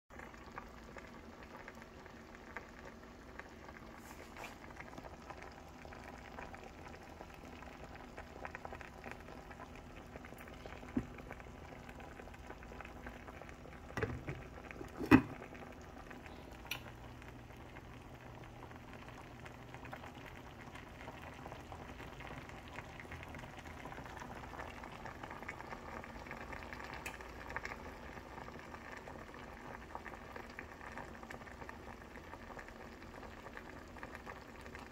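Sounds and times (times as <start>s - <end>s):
pot bubbling and sizzling: 0.1s - 34.9s
glass lid clanking on pot: 14.0s - 15.4s.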